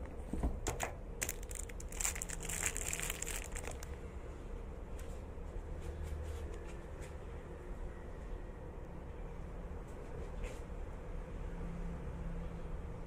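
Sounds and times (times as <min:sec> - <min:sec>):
small crackles and clicks: 0:00.7 - 0:04.0
steady low rumble: 0:01.2 - 0:04.8.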